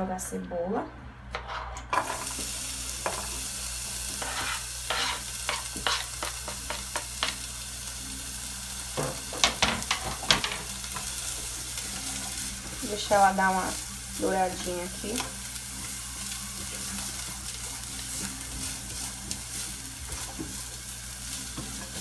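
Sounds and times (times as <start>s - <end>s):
onion sizzling in hot fat: 2.0s - 22.0s
knife scraping cutting board: 4.2s - 6.1s.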